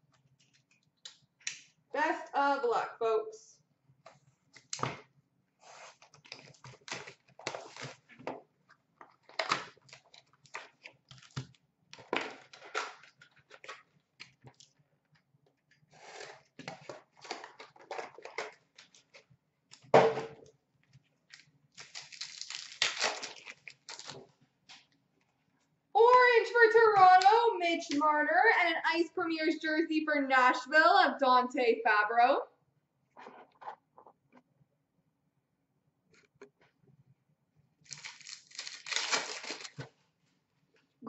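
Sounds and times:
card packs rustling and crinkling: 5.8 - 8.2, 9.0 - 14.7, 16.1 - 19.3, 21.3 - 24.3, 37.9 - 39.9
wrapper tearing: 5.9 - 8.0, 21.3 - 24.2, 37.9 - 39.9.

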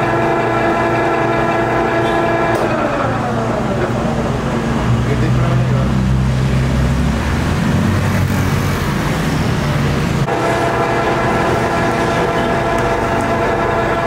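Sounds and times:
lathe humming: 0.0 - 4.9, 10.2 - 14.0
high-pitched whine: 9.7 - 14.0.

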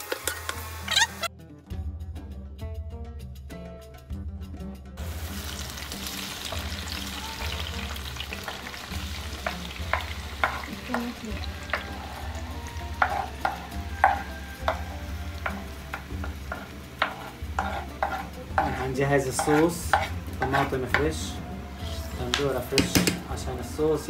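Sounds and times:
tomatoes sizzling in pan: 0.0 - 1.3, 5.0 - 24.0
spoon tapping board and pan: 6.1 - 21.3, 22.3 - 23.3.

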